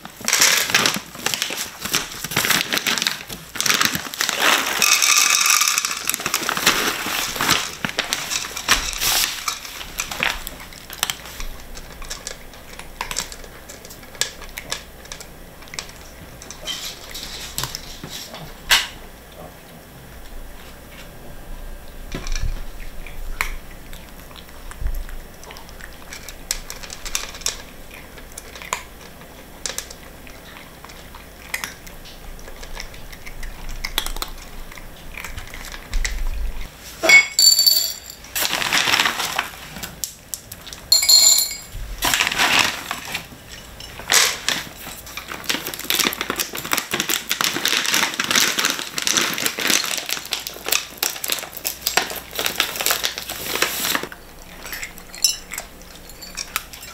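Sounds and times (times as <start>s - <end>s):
food bag rustling and crinkling: 0.0s - 12.3s, 38.2s - 41.1s, 41.7s - 54.2s
cats crunching dry kibble: 0.0s - 18.7s, 22.1s - 36.6s, 38.2s - 41.1s, 41.8s - 56.9s.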